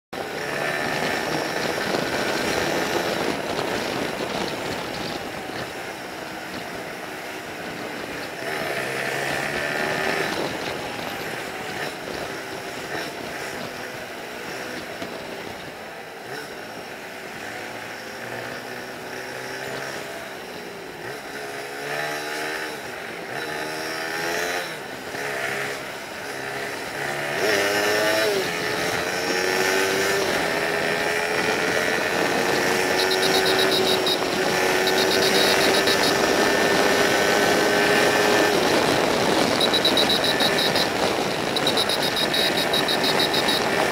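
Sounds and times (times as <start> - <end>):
motorcycle engine revving: 0.2 - 15.2, 16.2 - 43.9
wind rush: 0.6 - 8.6, 29.4 - 43.9
rapid high-pitched beeping: 32.7 - 36.7, 39.6 - 43.9.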